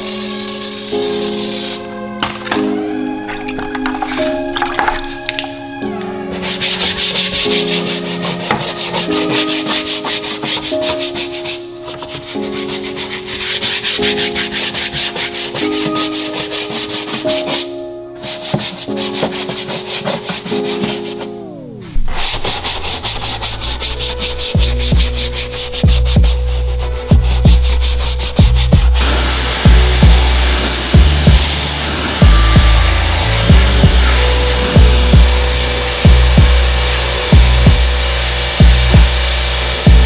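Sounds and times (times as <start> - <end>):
background music: 0.0 - 40.0
stiff brush scrubbing plastic: 3.3 - 21.4, 22.0 - 40.0
heavy bass: 22.1 - 40.0.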